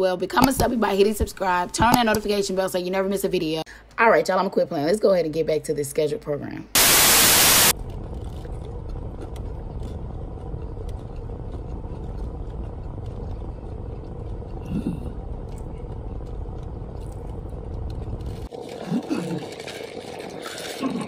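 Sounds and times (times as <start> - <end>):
person chewing food: 7.8 - 21.0
car engine rumble from cabin: 8.1 - 18.5.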